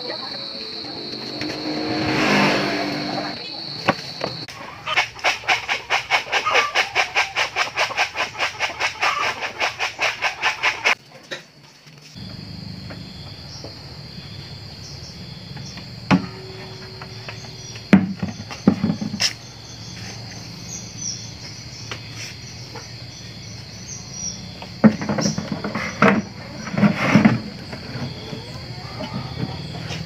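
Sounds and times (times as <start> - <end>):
high-pitched insect drone: 0.0 - 4.5.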